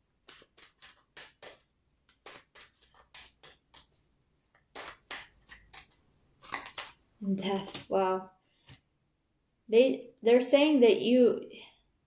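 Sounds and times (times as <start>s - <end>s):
cards being shuffled: 0.2s - 8.0s.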